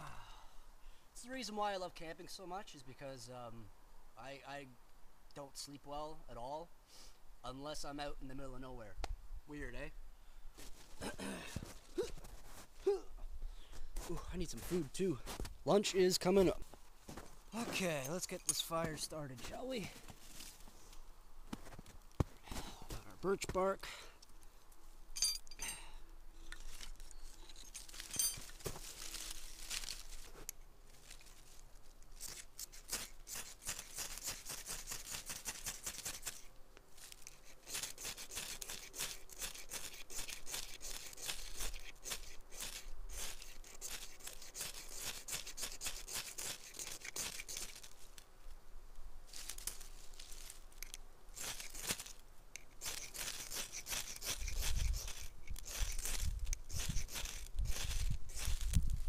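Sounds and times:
bark tearing by hand: 32.0s - 48.2s, 49.4s - 59.0s.

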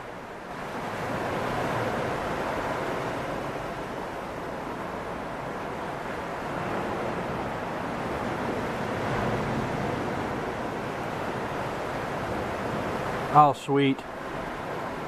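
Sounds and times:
ocean surf: 0.0s - 15.0s
wind: 0.0s - 15.0s.

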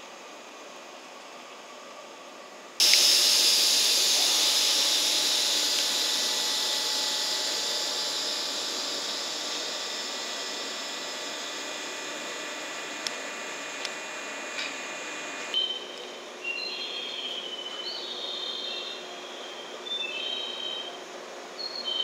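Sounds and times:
compressed air hissing from train: 2.8s - 15.6s.

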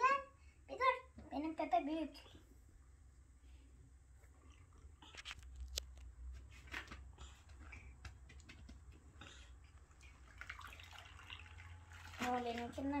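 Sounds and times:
splashes and squelches in water: 10.0s - 13.0s.

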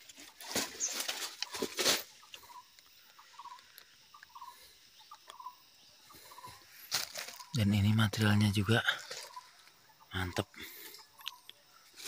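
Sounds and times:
rustle of leaves underfoot: 0.0s - 2.5s, 6.5s - 7.8s, 8.8s - 9.8s
small animal chirping: 0.8s - 7.6s.

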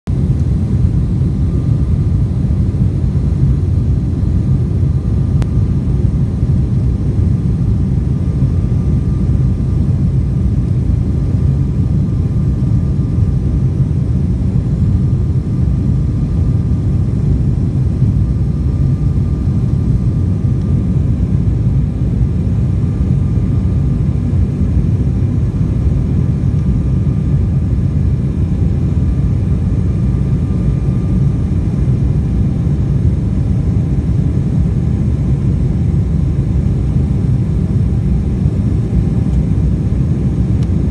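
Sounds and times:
jet engines and airflow rumble: 0.1s - 40.9s
faint thin whine: 0.2s - 40.9s.

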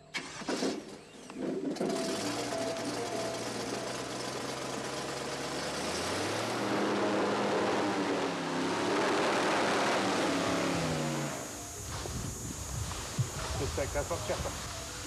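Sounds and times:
airboat engine and propeller: 2.0s - 12.5s.

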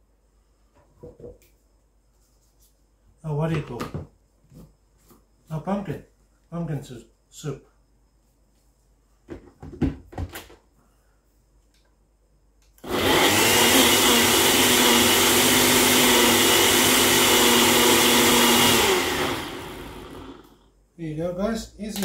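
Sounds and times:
blender motor whining: 12.8s - 20.6s.

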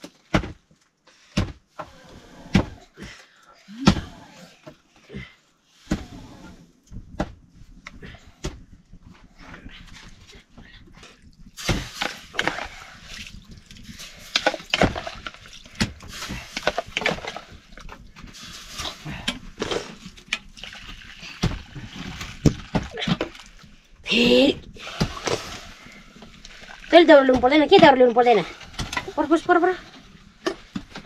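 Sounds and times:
water sloshing and splashing: 9.3s - 31.0s.

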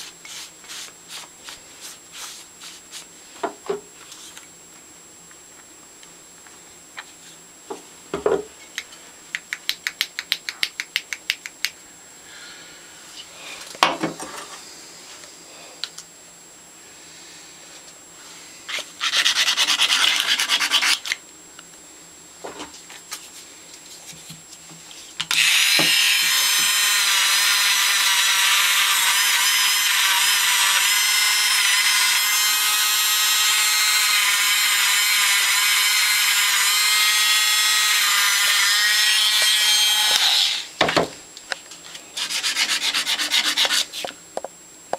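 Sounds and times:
power tool whining: 25.3s - 40.7s.

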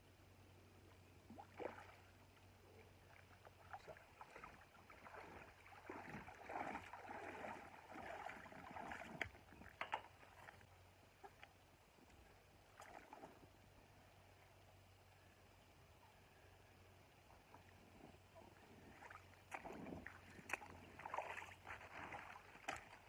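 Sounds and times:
shallow water splashing: 1.3s - 11.4s, 12.6s - 13.6s, 18.5s - 23.0s.

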